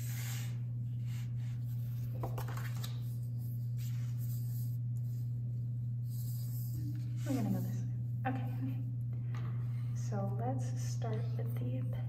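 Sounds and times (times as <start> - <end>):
low hum: 0.0 - 12.0
paper rustling and tapping: 2.1 - 3.0.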